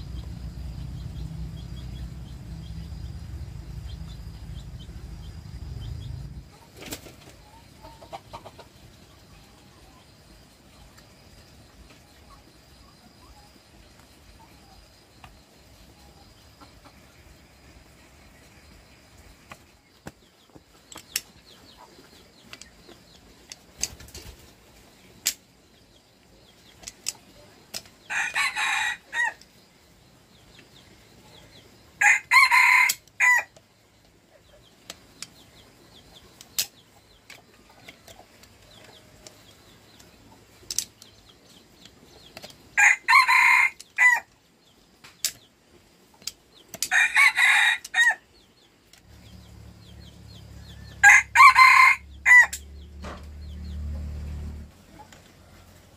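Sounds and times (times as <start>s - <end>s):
low steady hum: 0.0s - 8.0s
rooster crowing: 28.1s - 29.4s, 32.0s - 33.5s, 42.8s - 44.3s, 46.9s - 48.2s, 50.6s - 52.6s.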